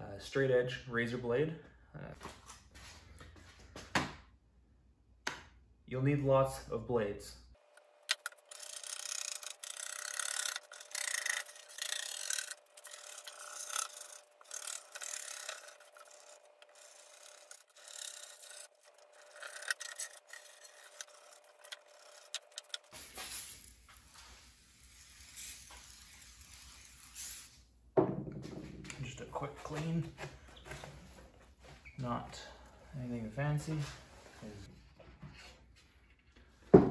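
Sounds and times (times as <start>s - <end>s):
razor scraper rasping on glass: 8.1s - 23.0s.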